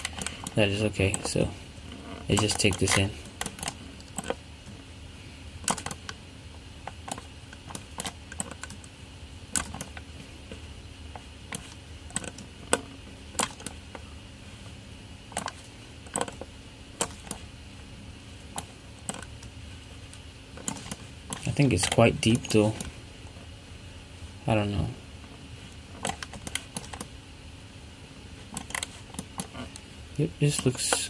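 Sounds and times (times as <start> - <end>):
faint steady hum: 0.0 - 31.0.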